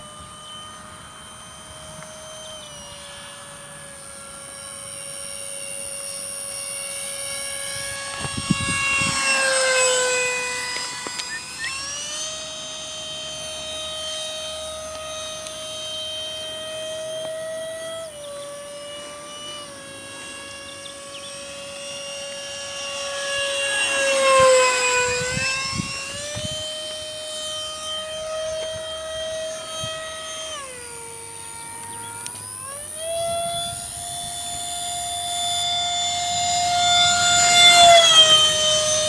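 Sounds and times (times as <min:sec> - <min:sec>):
electric ducted fan whining: 0:00.0 - 0:39.0.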